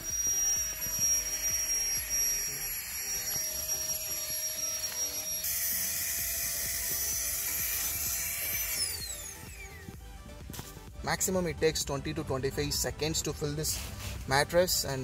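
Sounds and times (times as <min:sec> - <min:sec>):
electric air pump whining: 0:00.0 - 0:10.8.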